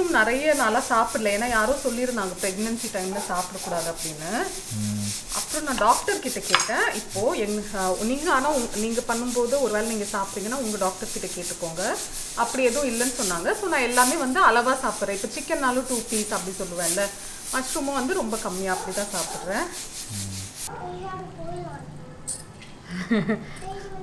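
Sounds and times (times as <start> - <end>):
woman talking: 0.0 - 4.6, 5.3 - 19.8
rubbing scraping noise: 0.0 - 20.7.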